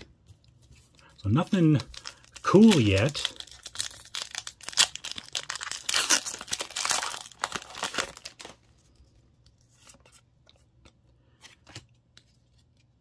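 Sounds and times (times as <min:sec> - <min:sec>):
foil wrapper tearing and crinkling: 0:01.5 - 0:08.6.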